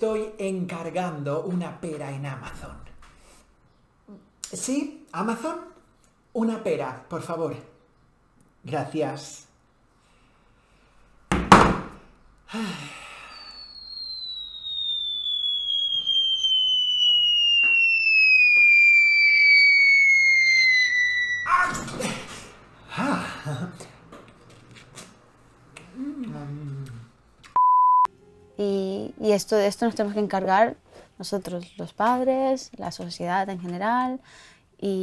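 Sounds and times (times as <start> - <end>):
sharp thunk: 11.3 - 11.9
cartoon falling whistle: 13.0 - 21.9.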